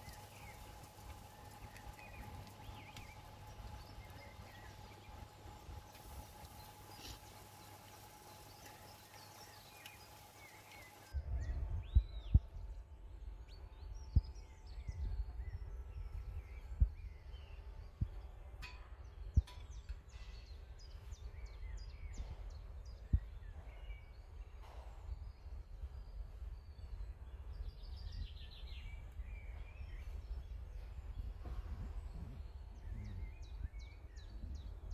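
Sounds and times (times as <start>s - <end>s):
birds chirping: 0.0s - 34.9s
low rumble: 11.1s - 18.2s, 28.8s - 34.9s.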